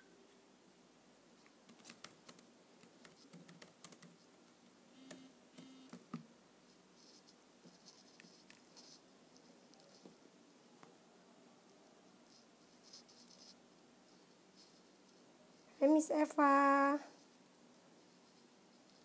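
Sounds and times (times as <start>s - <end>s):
fingers tapping on device: 1.7s - 4.2s, 5.0s - 6.2s.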